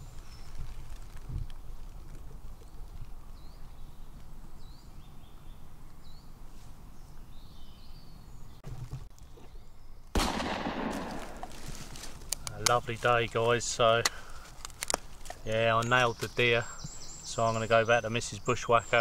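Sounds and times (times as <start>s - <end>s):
bird chirping: 0.0s - 10.1s, 15.4s - 19.0s.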